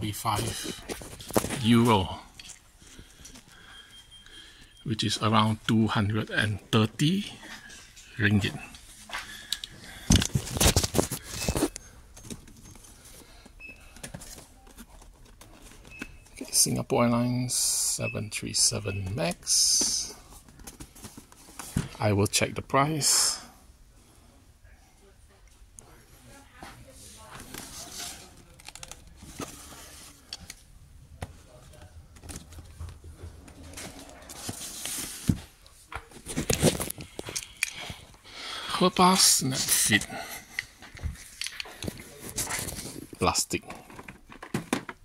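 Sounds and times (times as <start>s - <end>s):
cardboard boxes rustling and knocking: 32.1s - 37.0s.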